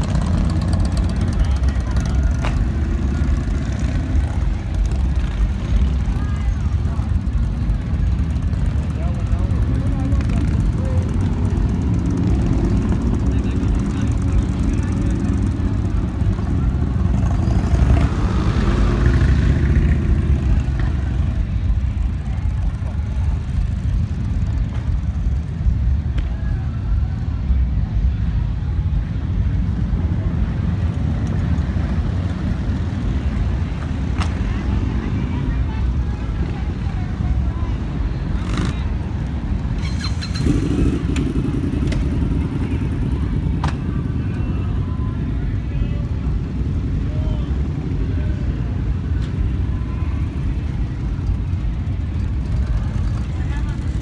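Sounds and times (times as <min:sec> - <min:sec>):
vehicle engine running: 0:00.0 - 0:26.1
motorcycle engine rumbling: 0:00.0 - 0:54.0.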